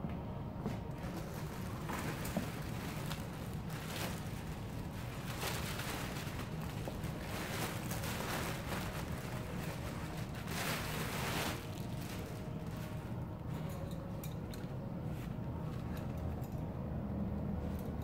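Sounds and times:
plastic bag crinkling: 0:00.9 - 0:14.7.

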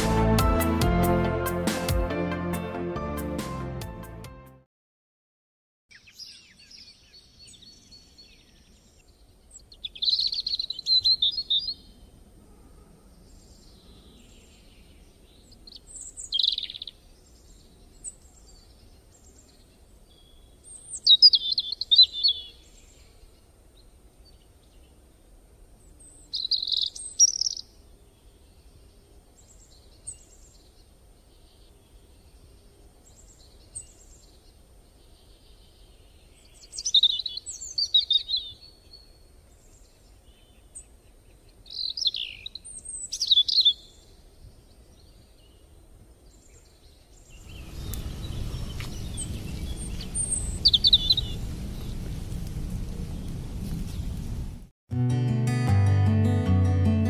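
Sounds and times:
bird chirping: 0:05.9 - 0:12.1, 0:13.2 - 0:23.4, 0:25.8 - 0:45.7, 0:46.3 - 0:52.1
faint outdoor background noise: 0:05.9 - 0:54.7.

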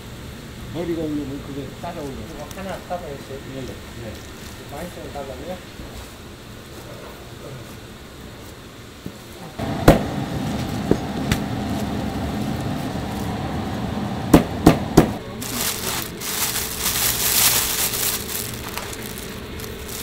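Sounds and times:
plastic bag rustling: 0:04.0 - 0:06.9, 0:15.2 - 0:20.0.

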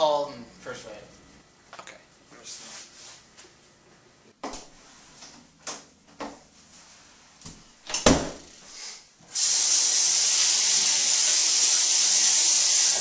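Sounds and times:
door thumping shut: 0:07.9 - 0:08.5
tap water running: 0:09.3 - 0:13.0.

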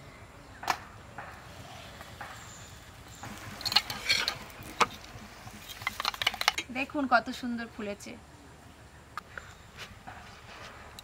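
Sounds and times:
metal spatula scraping a griddle: 0:03.3 - 0:06.6.

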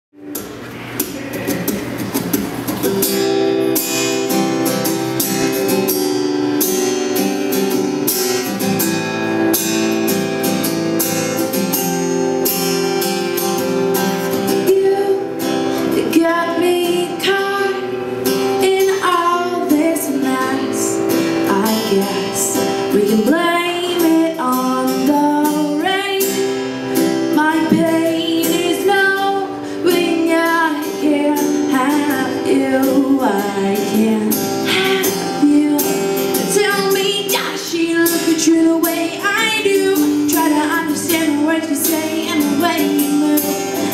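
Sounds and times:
acoustic guitar playing: 0:00.2 - 0:43.9
woman singing: 0:14.2 - 0:43.9.

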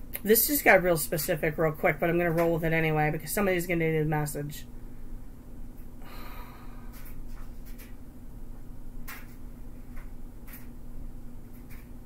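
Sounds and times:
low electrical hum: 0:00.0 - 0:12.0
person breathing out: 0:06.0 - 0:07.1.

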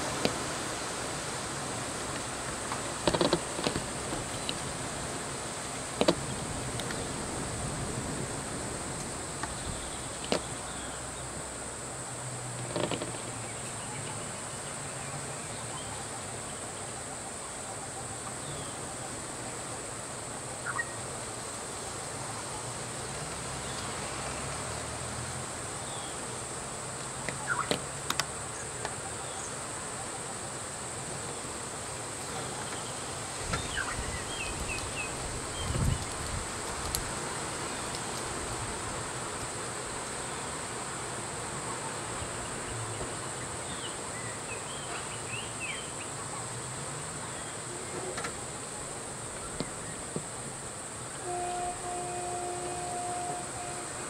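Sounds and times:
sharp clicks and knocks: 0:02.7 - 0:04.6, 0:06.0 - 0:06.2
high-pitched insect drone: 0:51.1 - 0:54.0.

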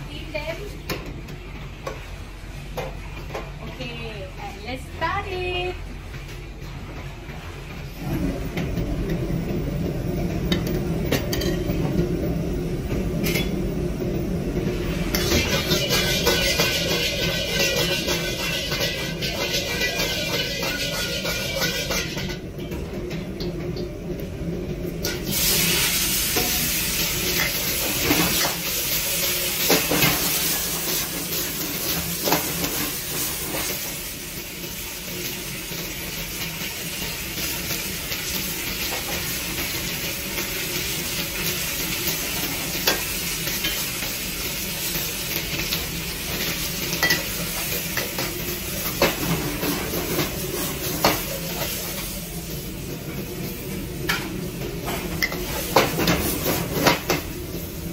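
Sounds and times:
vegetables sizzling in a wok: 0:00.0 - 0:57.9
metal ladle scraping wok: 0:14.9 - 0:22.4.

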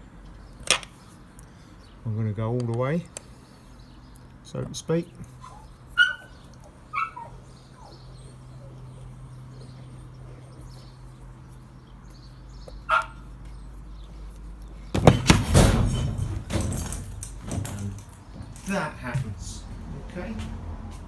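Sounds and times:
high animal calls: 0:05.4 - 0:10.8.

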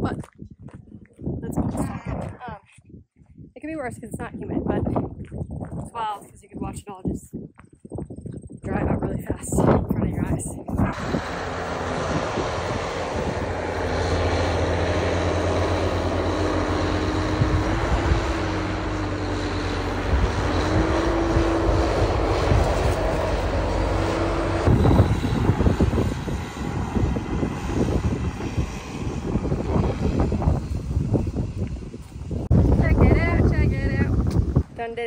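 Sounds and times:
wind buffeting microphone: 0:00.0 - 0:35.0
tractor diesel engine: 0:10.8 - 0:31.2.

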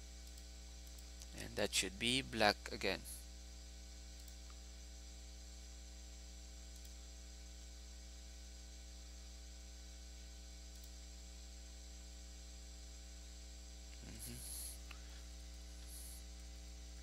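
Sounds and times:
electrical mains hum: 0:00.0 - 0:17.0
faint hiss: 0:14.0 - 0:15.2.

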